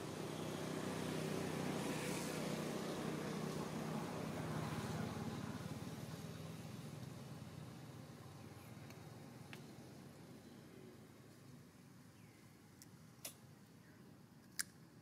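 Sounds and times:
vehicle engine droning: 0.0s - 11.2s.

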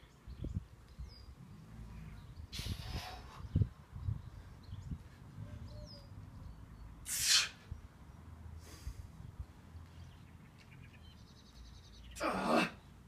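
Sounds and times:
man exhaling forcefully: 7.1s - 7.6s.

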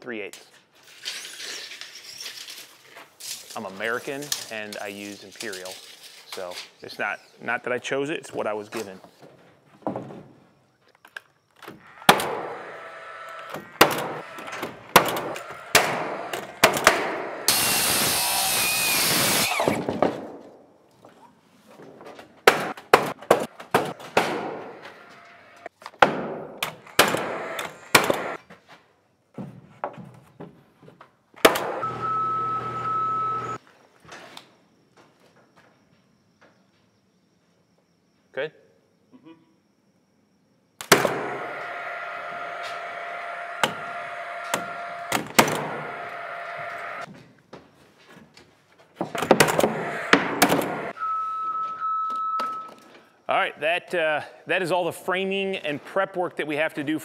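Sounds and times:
power driver running: 17.4s - 19.7s, 31.8s - 33.6s, 41.2s - 47.0s
knocks and bangs on lumber: 19.7s - 20.4s, 21.9s - 24.7s, 26.0s - 27.3s.

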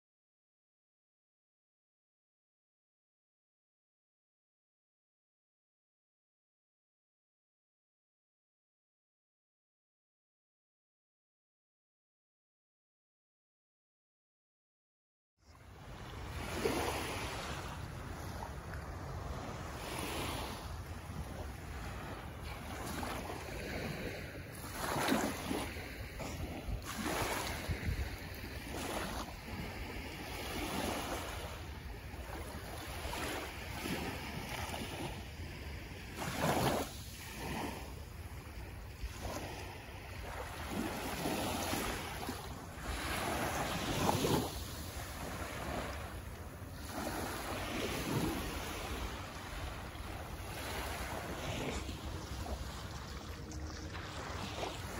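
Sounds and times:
small waves lapping on shore: 15.5s - 54.9s
wind on microphone: 15.6s - 54.9s.

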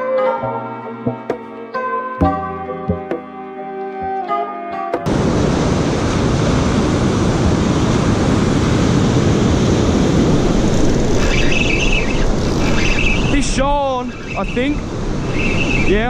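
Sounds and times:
background music: 0.0s - 5.1s
surf breaking on beach: 5.1s - 16.0s
wind buffeting microphone: 5.1s - 16.0s.

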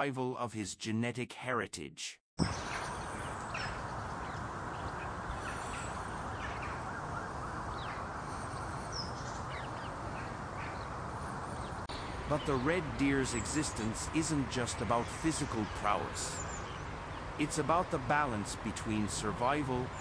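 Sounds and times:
short bird calls: 2.4s - 11.9s
background hiss: 2.4s - 20.0s.

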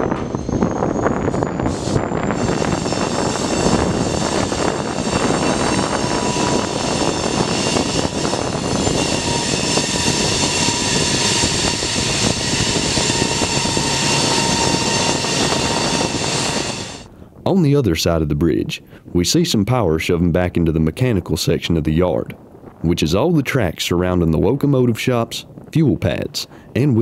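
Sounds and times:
diesel locomotive engine drone: 0.0s - 17.2s
high whine: 0.0s - 17.4s.

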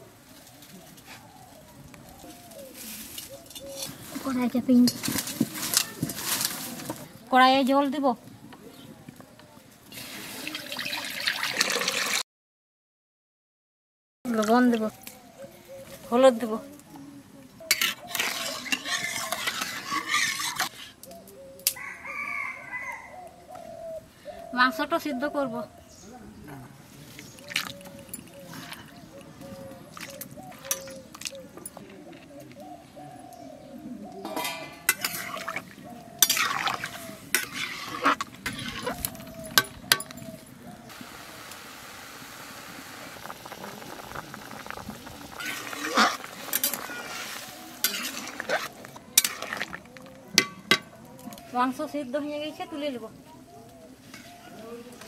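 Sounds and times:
metal ladle scraping a pan: 17.6s - 20.9s, 34.2s - 40.2s, 43.2s - 50.9s
water bubbling as it boils: 35.0s - 39.2s, 41.4s - 50.1s.

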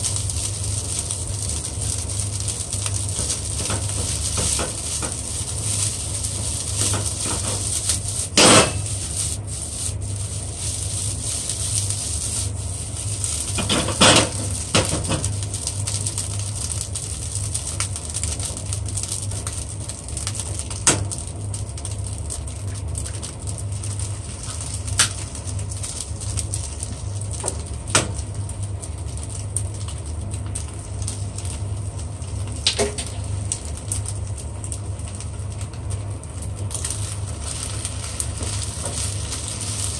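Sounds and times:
eggs cracked on pan: 0.0s - 9.1s, 13.0s - 23.8s, 24.4s - 26.6s, 27.3s - 34.1s
rice sizzling in a pan: 0.0s - 39.9s.

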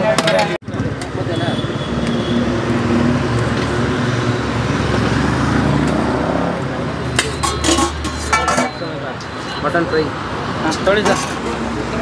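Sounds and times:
road traffic noise: 0.0s - 12.0s
metal spoon clinking on pots: 7.1s - 9.3s, 10.7s - 11.6s.

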